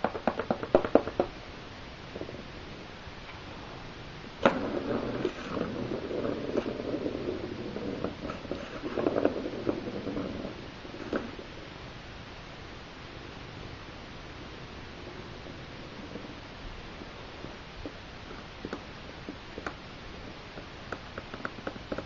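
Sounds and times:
cat scratching cardboard toy: 4.4 - 11.4.

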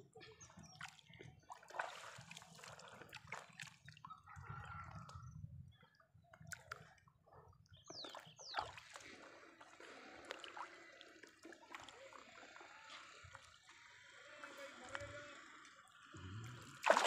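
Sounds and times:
water splashing and sloshing: 0.0 - 5.4, 7.9 - 15.1, 16.3 - 17.0.

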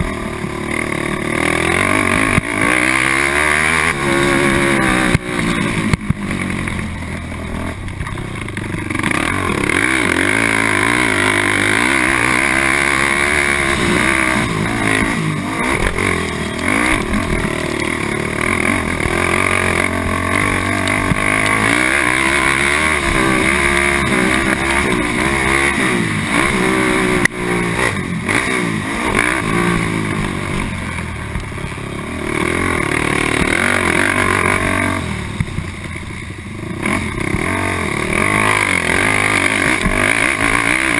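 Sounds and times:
quad engine revving: 0.0 - 40.9.

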